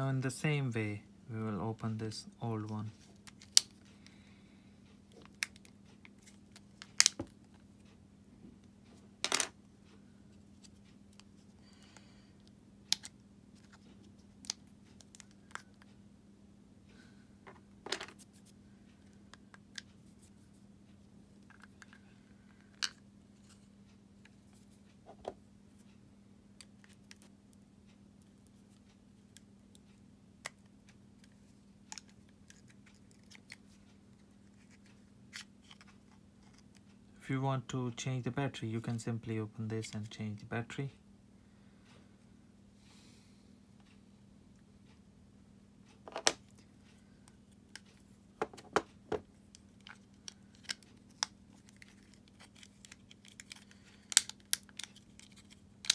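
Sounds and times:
faint steady hum: 0:00.0 - 0:55.9
plastic clicks and snaps: 0:49.8 - 0:55.9.

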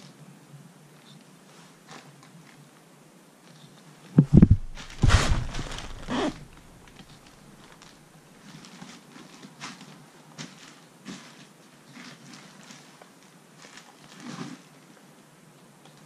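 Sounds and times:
heavy knocks on wooden frame: 0:04.2 - 0:06.9
rough scuffing on hide: 0:04.2 - 0:07.3.

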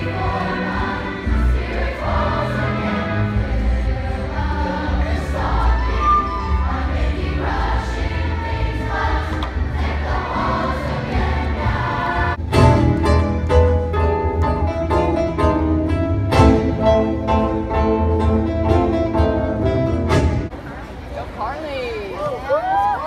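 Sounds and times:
choir singing: 0:00.0 - 0:12.7
music of held notes: 0:00.0 - 0:20.5.

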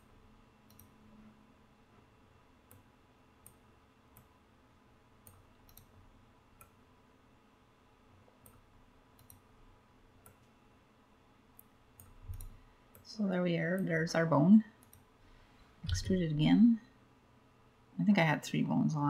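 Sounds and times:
low steady hum: 0:00.0 - 0:19.0
mouse and keyboard clicks: 0:11.6 - 0:12.6.

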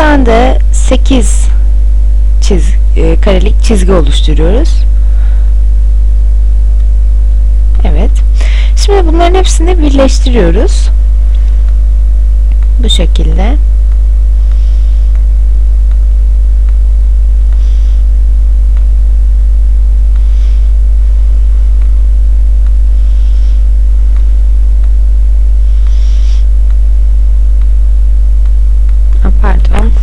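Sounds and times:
electrical mains hum: 0:00.0 - 0:30.0
faint ticks: 0:13.8 - 0:18.1.

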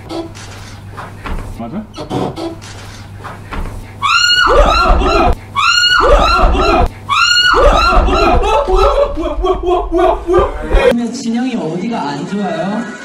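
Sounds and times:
excited voices: 0:04.1 - 0:10.9
people laughing: 0:07.6 - 0:10.9.

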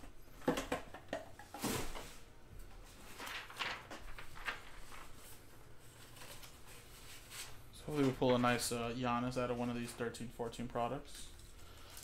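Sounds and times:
card packs being handled: 0:02.7 - 0:10.0.

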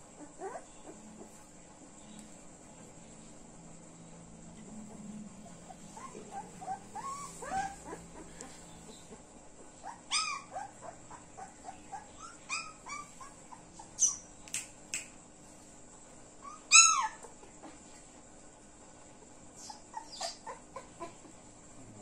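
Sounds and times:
puppies whining and yelping: 0:00.1 - 0:01.4, 0:04.9 - 0:14.2, 0:16.4 - 0:17.4, 0:19.6 - 0:21.3
sharp high clicks: 0:14.4 - 0:15.2.

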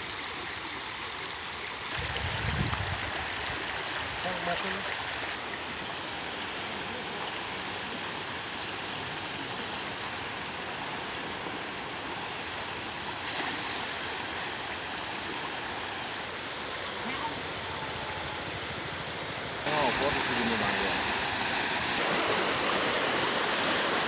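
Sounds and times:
floodwater rushing over road: 0:00.0 - 0:24.0.

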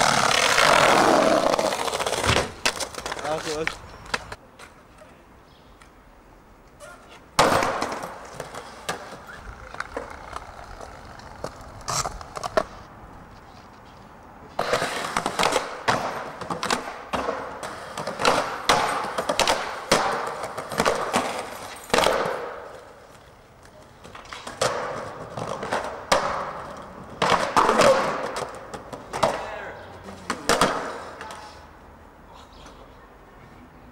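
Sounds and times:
skateboard clacks: 0:00.0 - 0:04.4, 0:07.1 - 0:12.8, 0:14.6 - 0:29.6, 0:30.2 - 0:31.5
skateboards rolling on stone: 0:00.0 - 0:05.0, 0:06.8 - 0:31.8.

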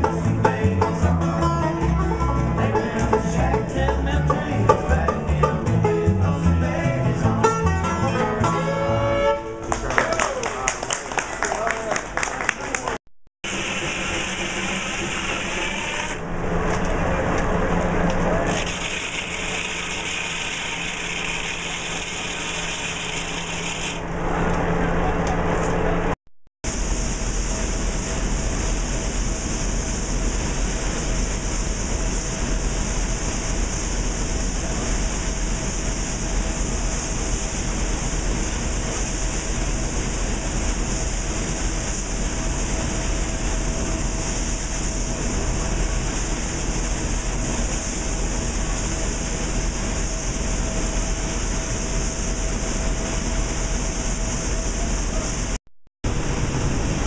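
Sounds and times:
air rushing through suction pipe: 0:13.4 - 0:16.6.

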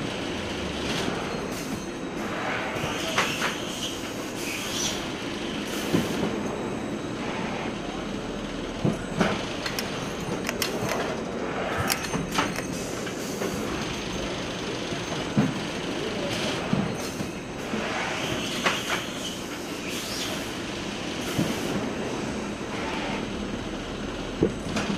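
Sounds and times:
conveyor mechanical noise: 0:00.0 - 0:24.9
sharp mechanical clacks: 0:09.2 - 0:14.0.

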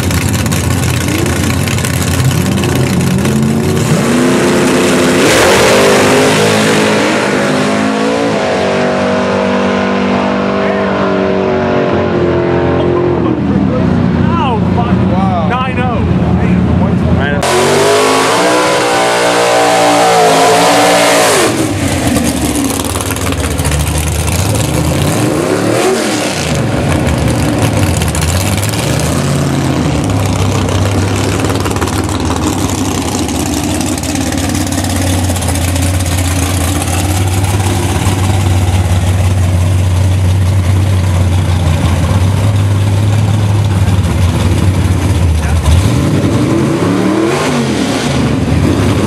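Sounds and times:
drag car engine revving: 0:00.0 - 0:49.0
deep engine idle: 0:30.0 - 0:45.7.

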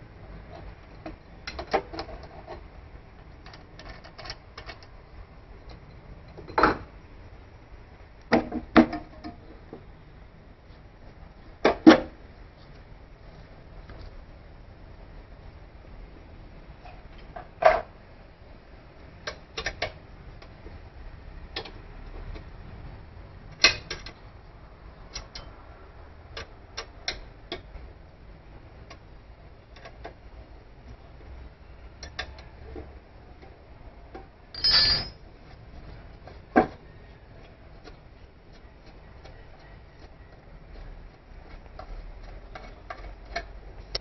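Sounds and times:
metal clicks of hex key and bolts: 0:23.6 - 0:24.2, 0:25.1 - 0:25.6.

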